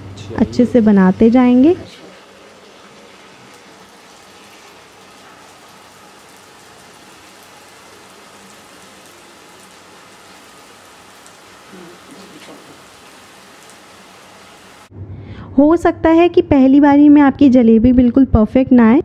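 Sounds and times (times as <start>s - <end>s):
batter sizzling in hot fat: 0.4s - 14.9s.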